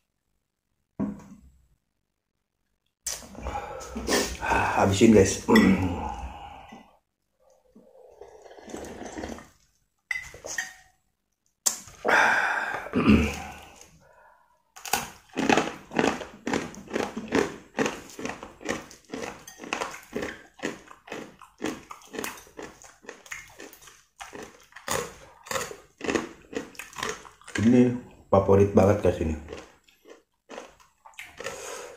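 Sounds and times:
slurping and gulping soup: 3.1 - 9.8, 11.8 - 14.3, 29.4 - 31.9
crunching on rice cracker: 14.8 - 27.8.

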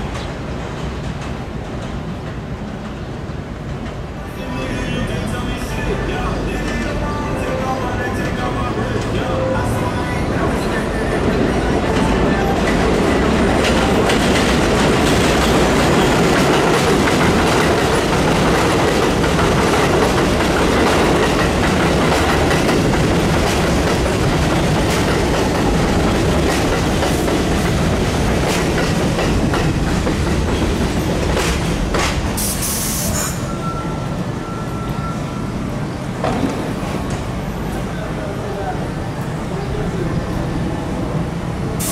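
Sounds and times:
train wheels clattering on rails: 0.0 - 4.1, 10.4 - 33.5, 36.2 - 37.8
short hiss: 32.4 - 33.4.

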